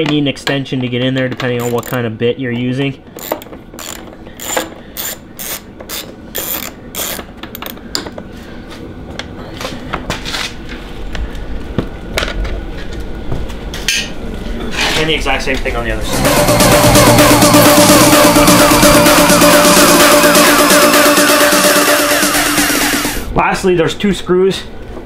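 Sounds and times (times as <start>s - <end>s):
ratchet clicking: 1.6s - 2.0s, 3.2s - 7.8s.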